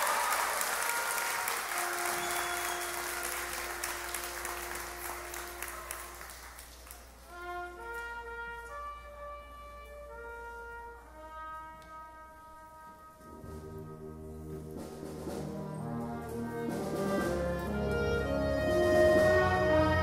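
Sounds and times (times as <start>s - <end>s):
applause: 0.0s - 7.3s
school band playing held notes: 0.0s - 20.0s.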